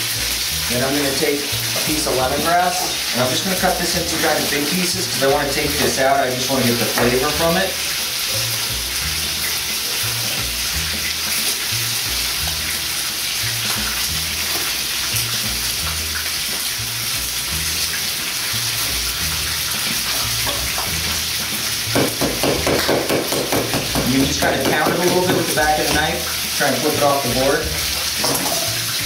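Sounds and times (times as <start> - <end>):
background music with bass line: 0.0 - 29.0
chicken sizzling in a pan: 0.0 - 29.0
knife knocking on cutting board: 21.9 - 26.1.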